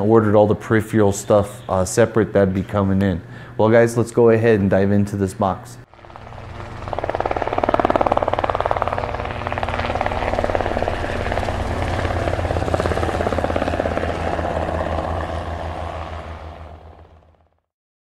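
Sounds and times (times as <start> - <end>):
helicopter rotor beating: 5.9 - 17.6.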